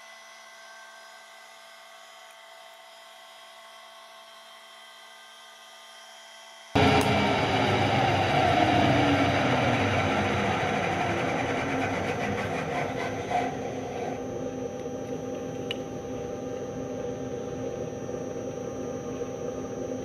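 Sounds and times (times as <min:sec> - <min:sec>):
end mill cutting metal: 0:06.8 - 0:20.0
milling machine hum: 0:06.8 - 0:20.0.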